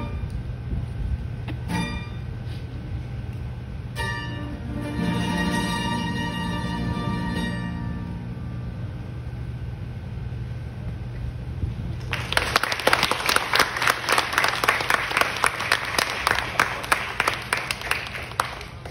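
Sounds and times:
plucked string chord: 3.9s - 8.8s
audience applause: 12.0s - 18.9s.

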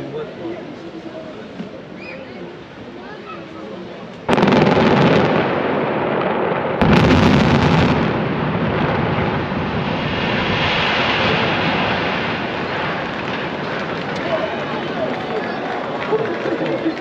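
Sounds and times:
loud explosive blast: 4.3s - 15.0s
rumble of building collapsing: 4.3s - 16.4s.

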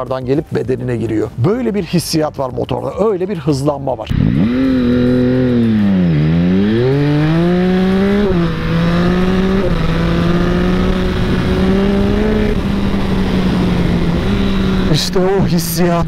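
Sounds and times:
motorcycle engine accelerating hard: 4.0s - 16.0s.

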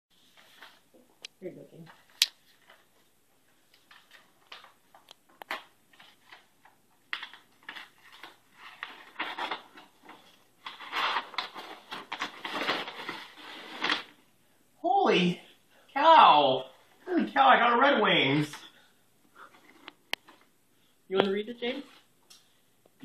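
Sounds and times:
paper tearing and crinkling: 3.7s - 14.2s.

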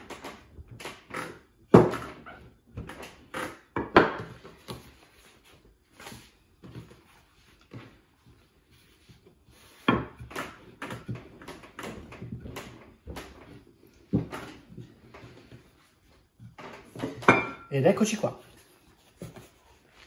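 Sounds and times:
rolling pin knocking on wooden table: 1.7s - 2.2s.

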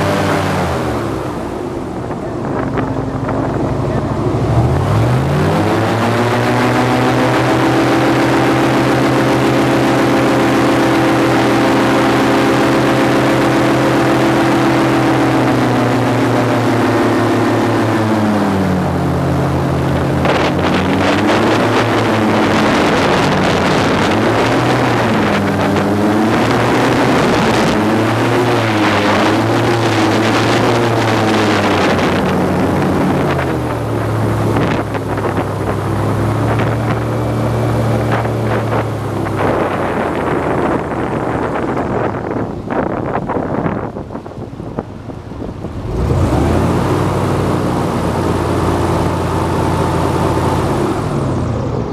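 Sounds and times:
airboat engine and propeller droning: 0.0s - 51.9s.

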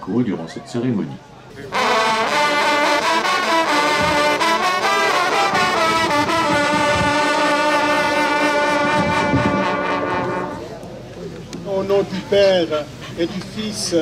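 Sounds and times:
hunting horns playing a fanfare: 1.5s - 11.0s.

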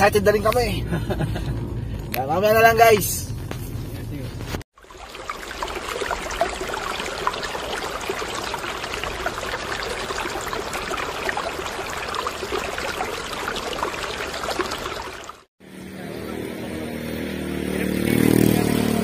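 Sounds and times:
running water trickling: 4.7s - 15.5s.

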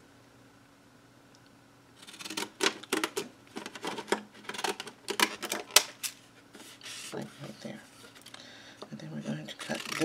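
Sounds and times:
scissors snipping cardstock: 9.6s - 10.0s.

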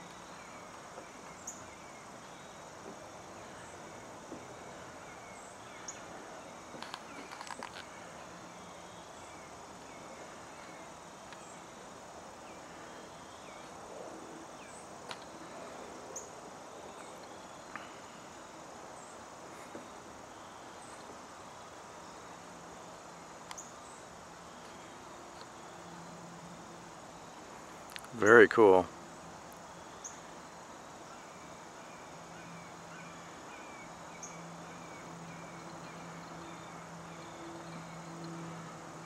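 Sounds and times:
crickets and insects chirring: 0.0s - 39.0s
cluster of clicks: 6.8s - 7.9s, 27.9s - 28.1s.

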